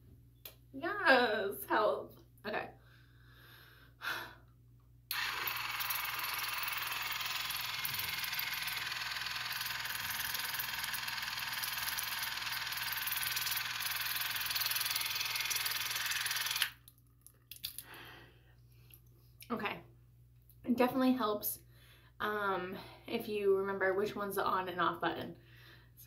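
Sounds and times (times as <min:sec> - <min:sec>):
water flosser buzzing and spraying: 0:05.1 - 0:16.8.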